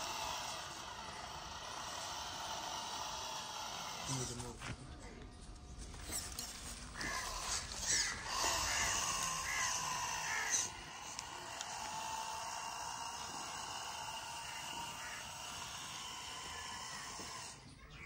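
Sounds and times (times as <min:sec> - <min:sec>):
small motor whine: 0:00.0 - 0:18.0
bird calling: 0:05.9 - 0:18.0.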